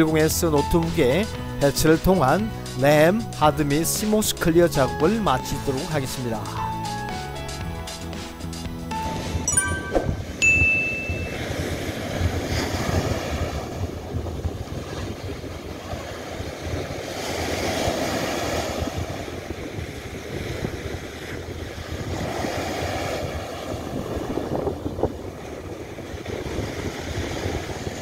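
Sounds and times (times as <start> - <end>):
wind on microphone: 10.0 - 28.0
surf washing onto beach: 10.4 - 28.0.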